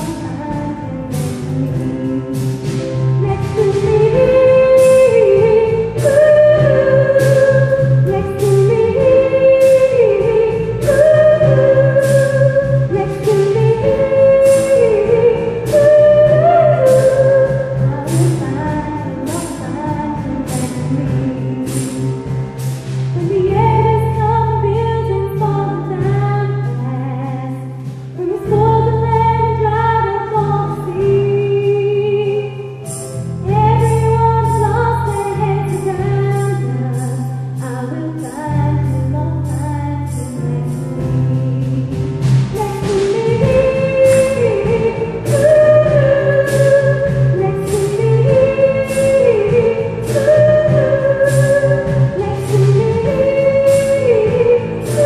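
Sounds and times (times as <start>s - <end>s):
percussive beat: 0.0s - 24.0s, 40.6s - 55.0s.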